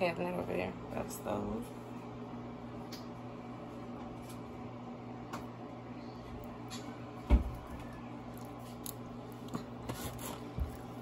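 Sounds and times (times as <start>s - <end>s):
spatula squishing and scraping sauce: 8.2s - 11.0s.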